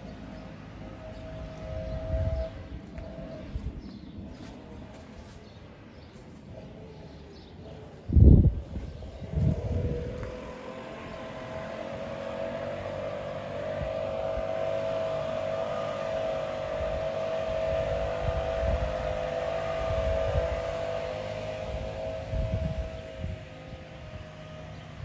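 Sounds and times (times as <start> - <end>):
mechanical whine: 0.0 - 5.0, 8.1 - 25.0
wind buffeting microphone: 1.0 - 4.9, 7.7 - 25.0.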